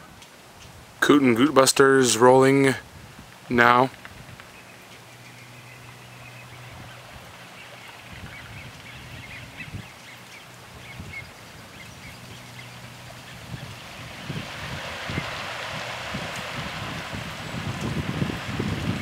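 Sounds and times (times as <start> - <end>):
low steady hum: 3.9 - 19.0.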